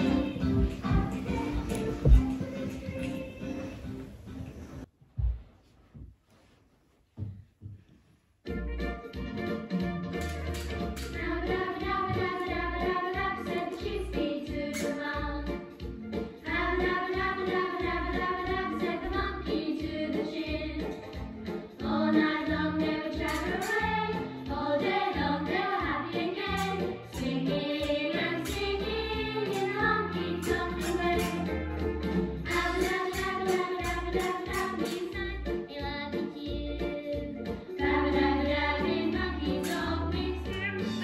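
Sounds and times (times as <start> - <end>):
song with singing over a beat: 11.0 - 31.6, 32.4 - 41.0.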